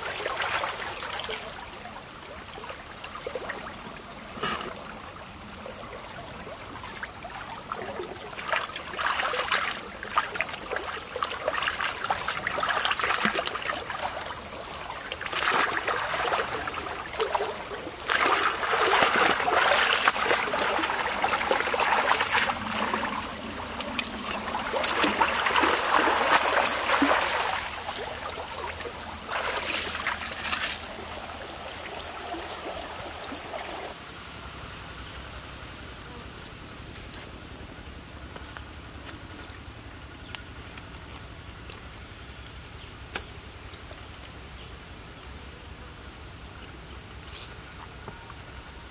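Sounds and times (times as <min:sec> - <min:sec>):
water splashing and sloshing: 0:00.0 - 0:34.1, 0:38.2 - 0:44.5
stream flowing: 0:00.0 - 0:34.4.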